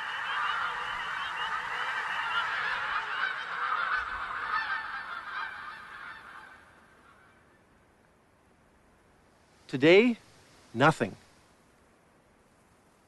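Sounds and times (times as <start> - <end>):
flock of geese honking: 0.0 - 7.6.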